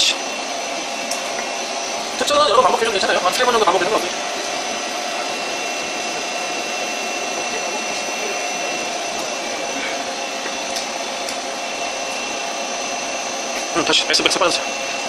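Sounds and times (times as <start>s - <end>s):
lathe whirring: 0.0s - 15.0s.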